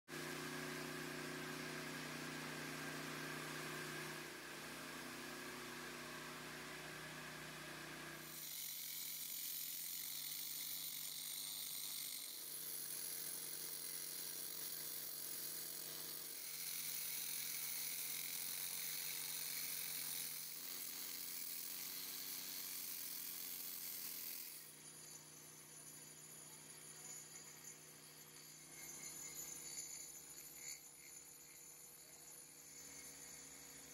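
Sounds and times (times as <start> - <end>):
blade grinding through concrete: 8.2 - 25.2, 28.4 - 33.9.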